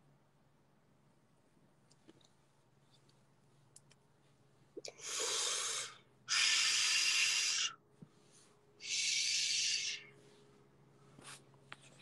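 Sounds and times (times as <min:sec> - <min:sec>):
hard breaths into microphone: 0:04.9 - 0:11.5.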